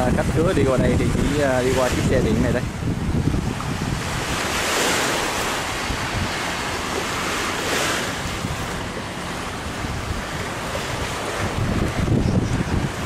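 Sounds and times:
wind blowing across microphone: 0:00.0 - 0:13.0.

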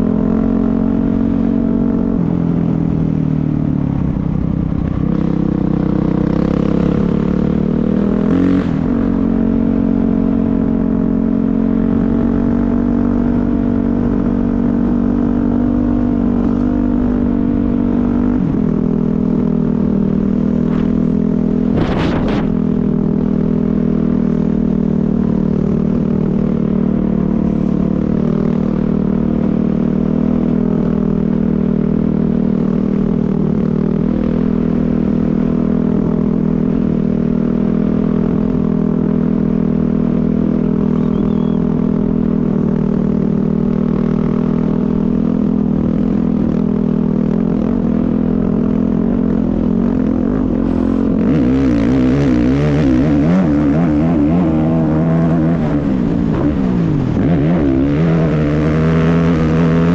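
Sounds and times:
race vehicle engine running: 0:00.0 - 0:59.9
rush of noise: 0:20.4 - 0:23.0.

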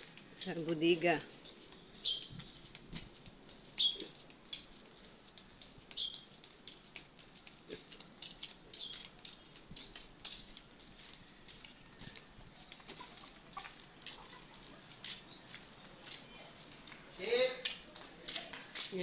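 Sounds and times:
flip-flop footsteps on concrete: 0:00.0 - 0:19.0.

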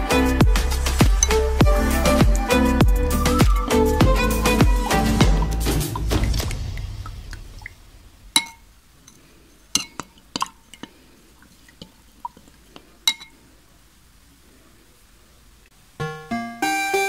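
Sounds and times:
spoon clinking in glass: 0:01.2 - 0:01.5, 0:08.4 - 0:10.9, 0:13.1 - 0:13.4.

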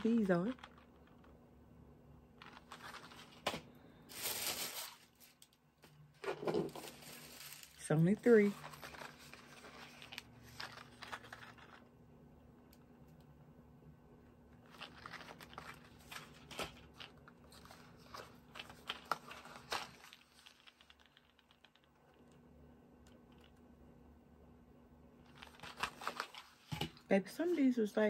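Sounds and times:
packaging crinkling and clicking: 0:14.6 - 0:22.4, 0:25.2 - 0:27.0.

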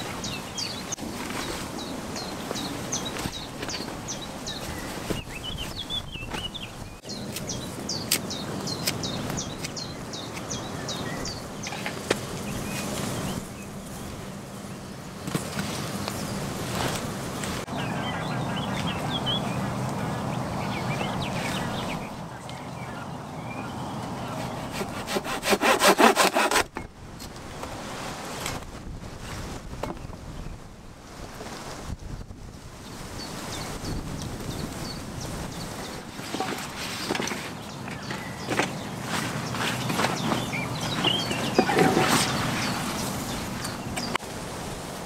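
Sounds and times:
small birds chirping: 0:00.0 - 0:16.4, 0:17.7 - 0:25.0, 0:33.2 - 0:44.2
rustle and knocks of camp work: 0:00.0 - 0:17.7, 0:23.9 - 0:30.4, 0:31.0 - 0:33.1, 0:34.0 - 0:45.0
hand saw cutting wood: 0:24.3 - 0:26.8, 0:39.2 - 0:42.6.

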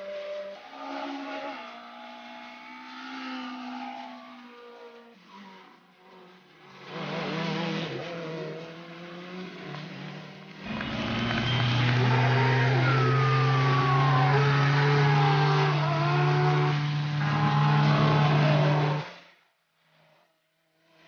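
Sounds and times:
whining tones sliding in pitch: 0:00.0 - 0:05.8, 0:09.5 - 0:19.1
car engine running hard: 0:06.9 - 0:19.0.

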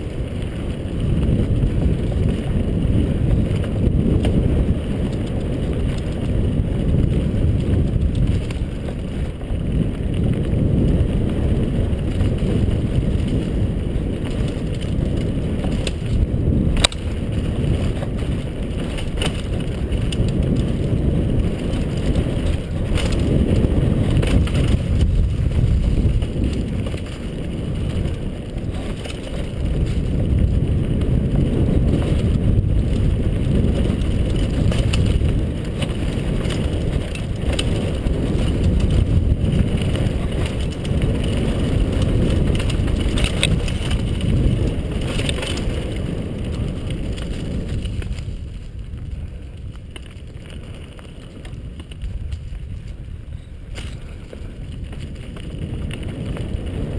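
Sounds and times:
bike knocking on bumps: 0:00.0 - 0:56.9
bike tyres rumbling on dirt: 0:00.0 - 0:56.9
wind on microphone: 0:00.0 - 0:56.9.

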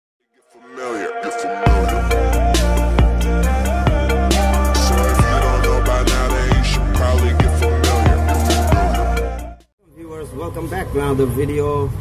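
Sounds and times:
intro music with gliding voice: 0:00.3 - 0:09.7
heavy bass and drum beat: 0:01.7 - 0:09.6.

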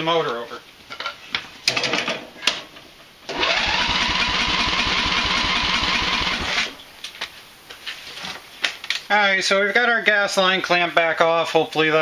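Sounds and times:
starter cranking engine: 0:03.3 - 0:06.8.

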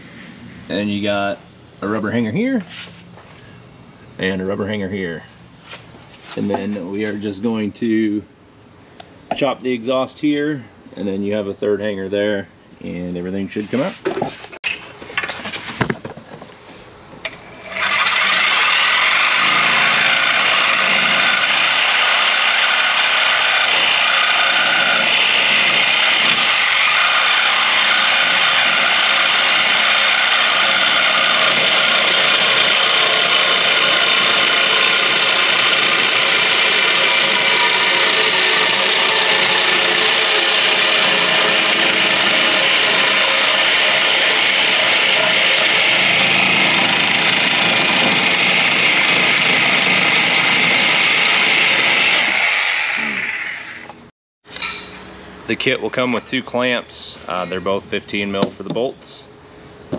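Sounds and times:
reciprocating saw cutting metal: 0:17.4 - 0:53.9.

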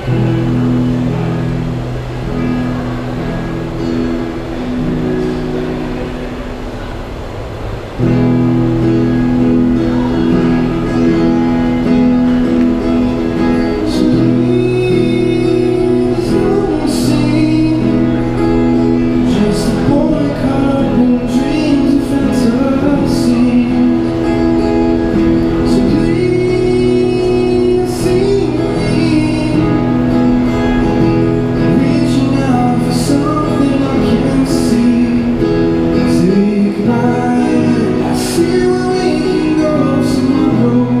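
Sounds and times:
acoustic guitar: 0:00.0 - 0:41.0
man singing: 0:13.4 - 0:41.0.

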